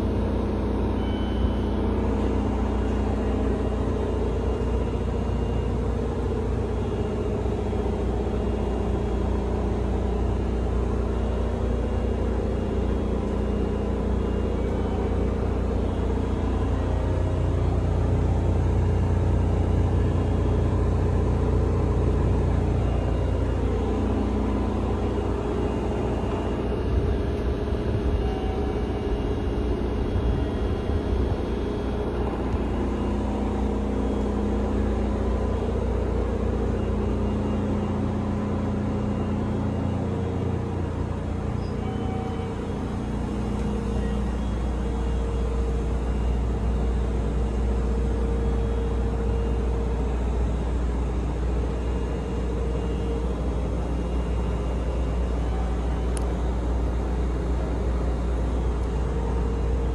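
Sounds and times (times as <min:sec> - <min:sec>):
train car hum and whir: 0:00.0 - 0:59.9.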